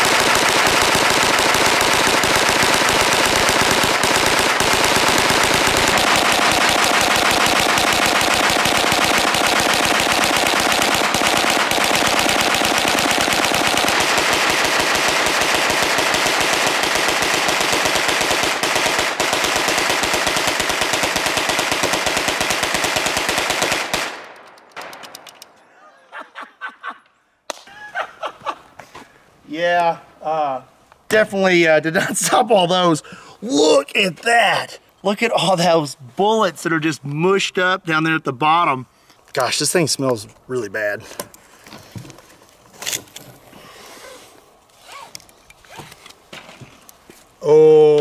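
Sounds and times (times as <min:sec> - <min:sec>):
gatling gun rapid firing: 0:00.0 - 0:25.4.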